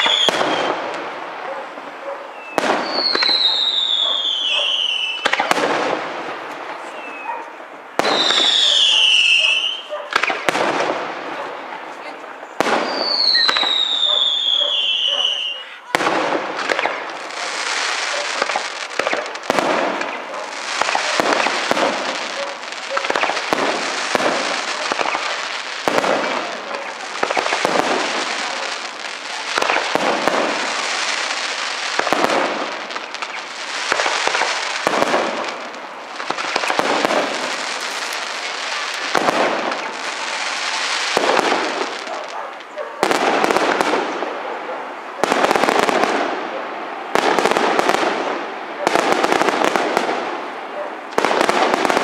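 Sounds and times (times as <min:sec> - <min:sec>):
fireworks crackling: 0:00.0 - 0:52.0
firework shells bursting: 0:18.1 - 0:42.2.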